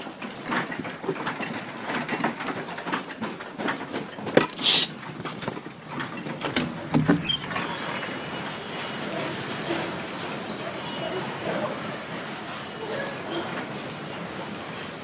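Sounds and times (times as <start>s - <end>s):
loose objects knocking and rattling: 0.5s - 7.7s
handheld phone rubbing and bumping: 4.4s - 4.9s
short loud hiss: 4.5s - 4.9s.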